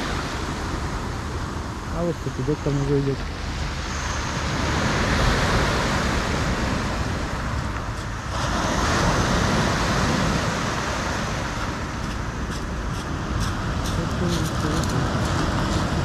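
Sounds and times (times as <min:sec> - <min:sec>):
surf breaking on pebbles: 0:04.8 - 0:16.0.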